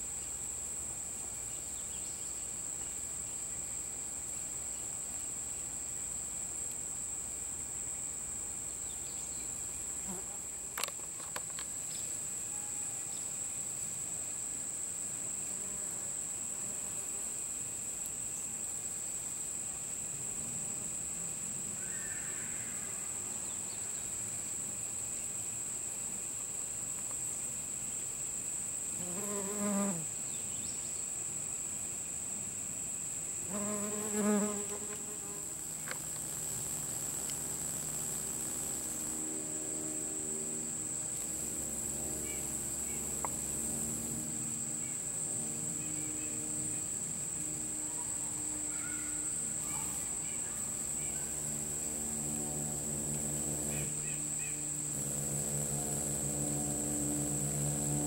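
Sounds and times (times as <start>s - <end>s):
high-pitched insect chorus: 0.0s - 58.0s
flying insect buzzing: 10.0s - 11.6s, 28.9s - 30.1s, 33.4s - 58.0s.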